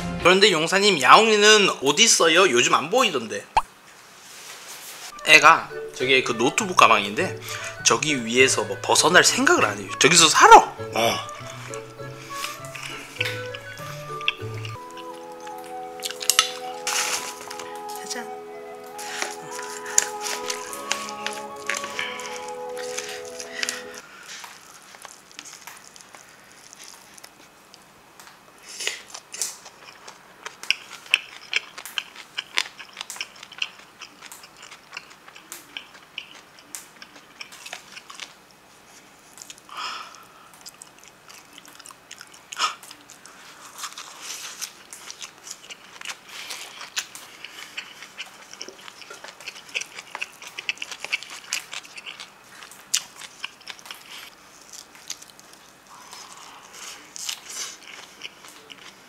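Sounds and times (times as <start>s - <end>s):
wet chewing and lip-smacking: 11.2s - 16.7s, 19.2s - 27.5s, 28.9s - 38.4s, 39.3s - 59.0s.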